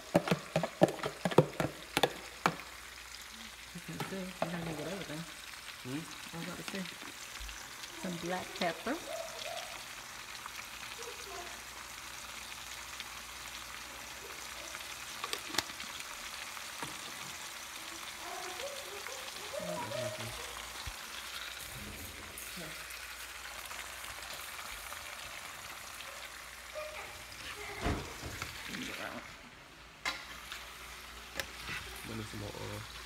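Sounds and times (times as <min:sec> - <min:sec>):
spoon stirring food in a pan: 0:00.0 - 0:02.9, 0:03.9 - 0:04.8, 0:15.0 - 0:15.9, 0:30.1 - 0:32.1
food sizzling in a frying pan: 0:00.0 - 0:33.0.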